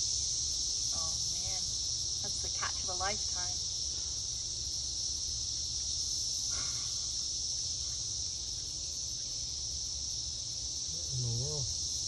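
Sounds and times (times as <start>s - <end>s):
cicadas buzzing: 0.0s - 12.0s.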